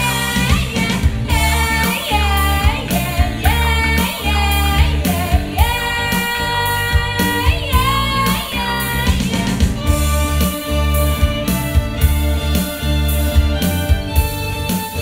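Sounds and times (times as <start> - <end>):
woman singing: 0.0 - 10.1
bass and drum beat: 0.0 - 15.0
violin melody: 1.3 - 15.0.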